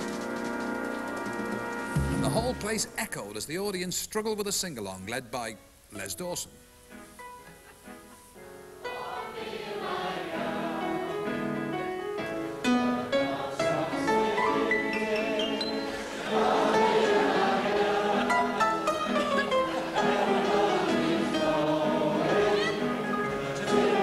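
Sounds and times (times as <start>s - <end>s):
piano and band accompaniment: 0.0s - 3.6s, 10.4s - 24.0s
audience singing along: 8.8s - 11.6s, 12.8s - 24.0s.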